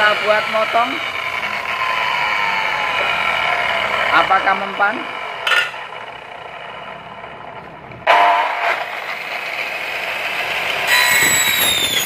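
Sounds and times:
saw motor whining: 0.0s - 12.0s
saw blade screeching on metal: 10.8s - 12.0s.

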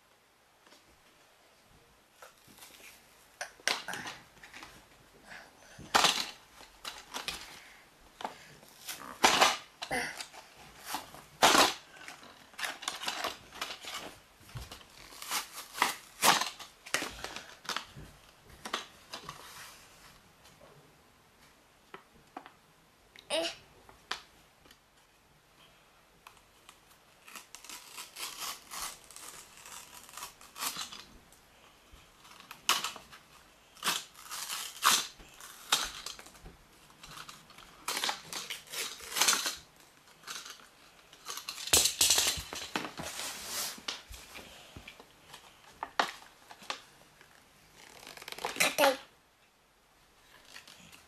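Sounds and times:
plastic packaging crinkling and tearing: 8.4s - 17.9s, 26.6s - 31.2s, 32.1s - 44.6s, 45.2s - 49.0s, 50.2s - 51.0s.

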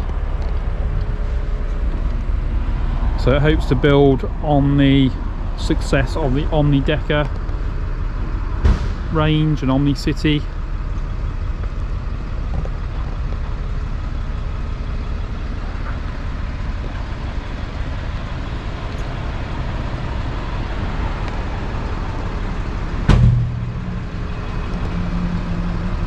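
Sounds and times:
vehicle engine idling: 0.0s - 26.0s
sharp thump: 8.6s - 9.2s, 23.1s - 24.0s.

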